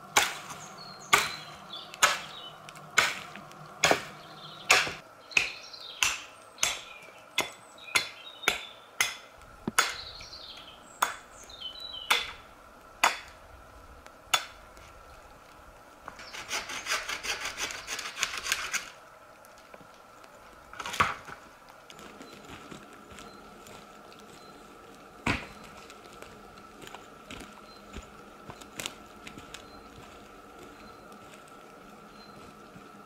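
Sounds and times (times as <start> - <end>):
hatchet chopping wood: 0.1 - 2.4, 3.0 - 10.0, 11.0 - 11.2, 12.1 - 12.4, 13.0 - 13.3, 14.3 - 14.6, 25.2 - 25.5
fast scraping: 16.2 - 19.0.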